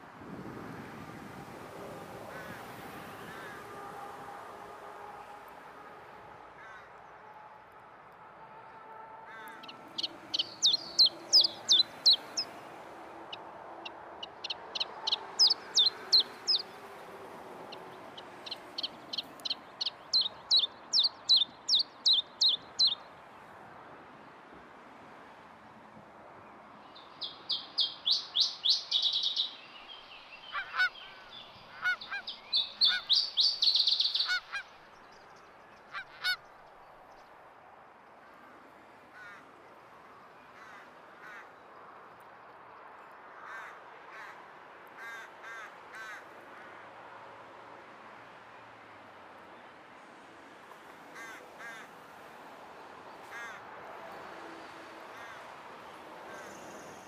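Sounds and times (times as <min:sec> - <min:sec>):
birds singing high notes: 0:09.6 - 0:12.6, 0:14.2 - 0:16.7.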